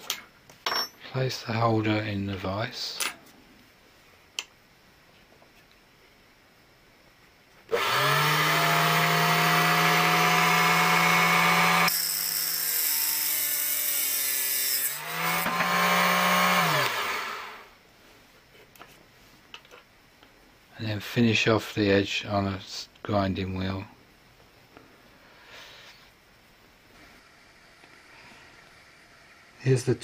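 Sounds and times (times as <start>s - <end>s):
saw motor humming: 7.7s - 17.7s.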